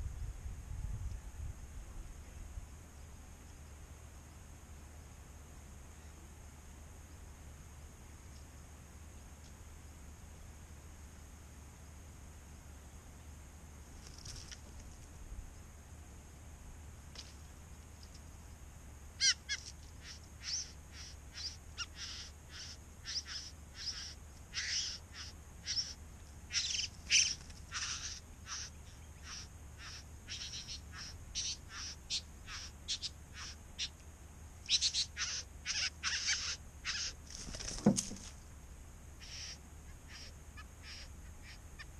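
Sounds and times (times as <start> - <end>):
bird song of short high calls: 19.2 - 34.0, 34.6 - 37.6, 39.2 - 41.9.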